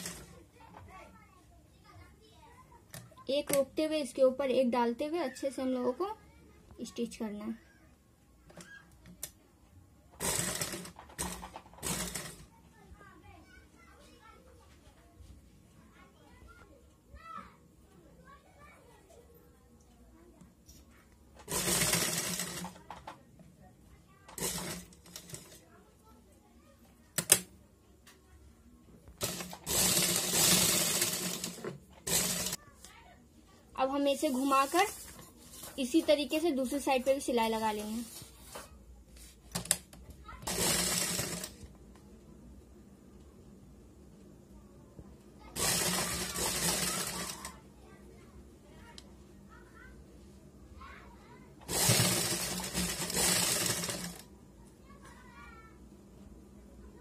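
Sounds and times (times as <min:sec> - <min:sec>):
sewing machine stitching: 0:00.0 - 0:00.4, 0:10.2 - 0:12.5, 0:21.4 - 0:23.0, 0:24.3 - 0:25.6, 0:29.2 - 0:32.6, 0:40.4 - 0:41.6, 0:45.6 - 0:47.6, 0:51.6 - 0:54.3.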